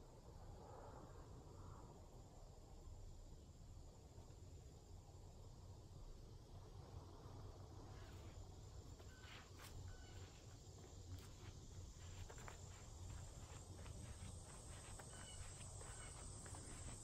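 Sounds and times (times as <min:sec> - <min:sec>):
footsteps on leaves and twigs: 0:09.0 - 0:17.0.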